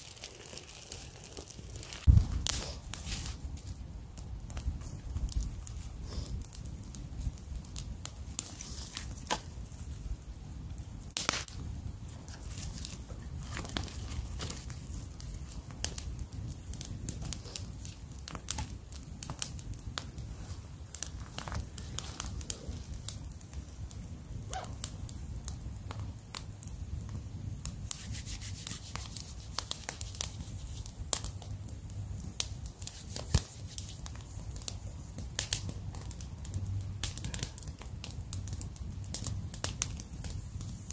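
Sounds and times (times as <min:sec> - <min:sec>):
campfire crackling and popping: 0:00.0 - 0:40.9
steady low rumble: 0:01.9 - 0:26.1.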